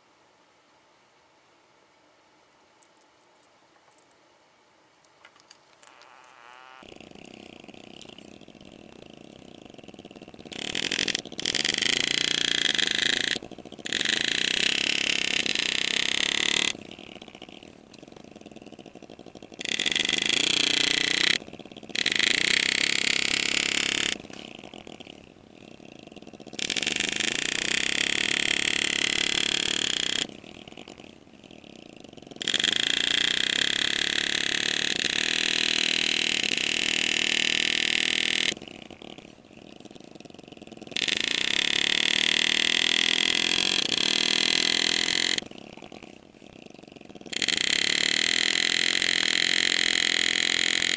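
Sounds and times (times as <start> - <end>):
steady low hum: 0.0 - 35.8
engraving handpiece running: 5.3 - 31.0, 31.9 - 50.9.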